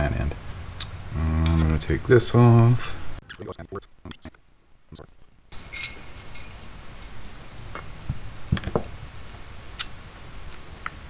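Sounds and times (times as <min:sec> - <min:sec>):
small metal parts clinking: 0:05.6 - 0:06.8.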